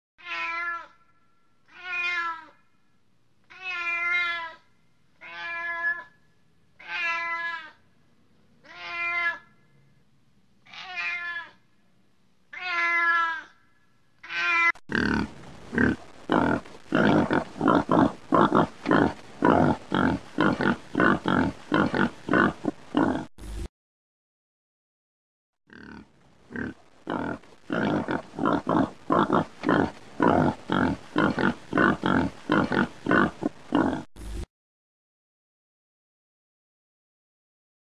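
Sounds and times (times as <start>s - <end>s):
cat meowing: 0.2s - 1.0s, 1.7s - 2.6s, 3.5s - 4.6s, 5.2s - 6.1s, 6.8s - 7.8s, 8.6s - 9.5s, 10.7s - 11.6s, 12.5s - 13.6s, 14.2s - 14.8s
rough animal grunting: 14.9s - 23.3s, 25.7s - 34.1s.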